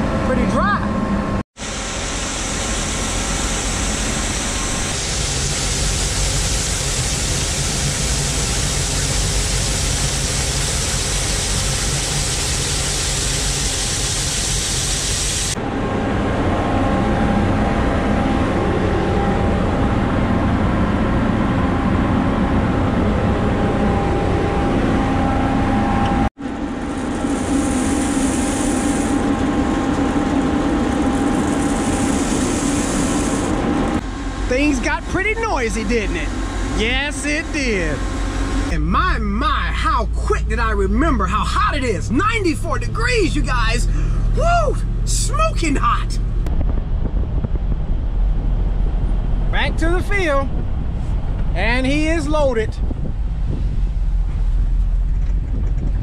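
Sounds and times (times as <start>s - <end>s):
harvest machinery noise: 1.8s - 46.6s.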